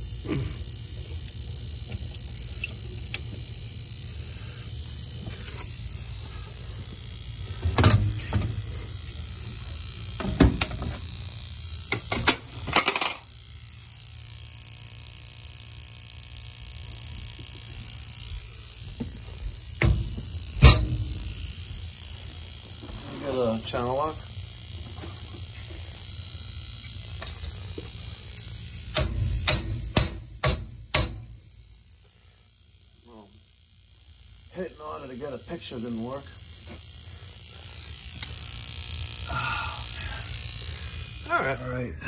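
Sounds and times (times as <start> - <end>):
metal parts knocking and rattling: 7.6 - 8.6, 11.9 - 13.2.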